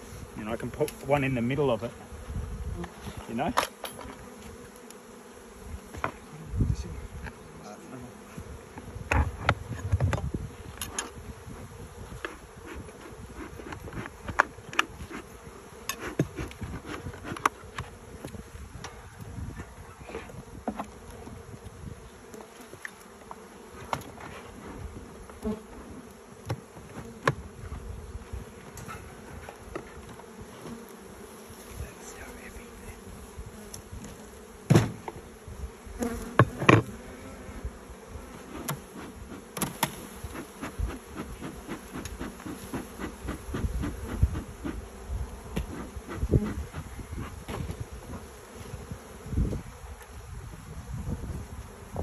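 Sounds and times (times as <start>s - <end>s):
honeybees buzzing: 0.0s - 52.0s
knocks of hive boxes: 8.4s - 19.0s, 22.4s - 25.7s, 26.4s - 27.8s, 34.0s - 35.3s, 36.0s - 37.2s, 38.2s - 49.6s.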